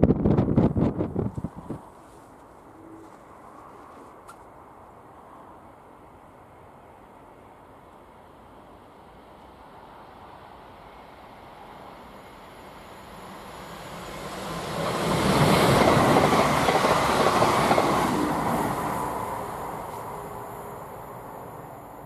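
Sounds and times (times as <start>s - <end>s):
electric train passing: 4.6s - 22.0s.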